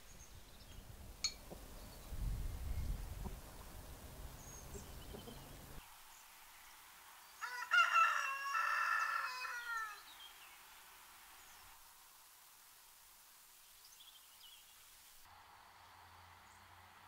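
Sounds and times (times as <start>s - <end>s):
rooster crowing: 7.4s - 10.1s.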